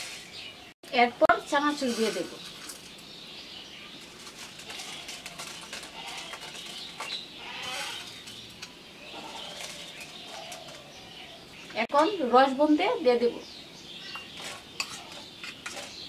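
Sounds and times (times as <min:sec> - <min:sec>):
dry snack rustling onto plate: 0:01.4 - 0:03.2, 0:03.8 - 0:11.1
bird calling softly: 0:02.4 - 0:12.2.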